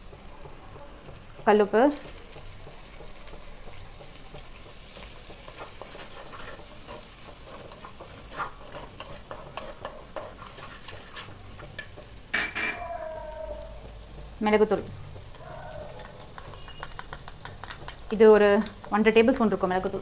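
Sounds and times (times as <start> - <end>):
food sizzling in oil: 0.0 - 20.0
wooden spatula scraping pot: 0.2 - 12.8.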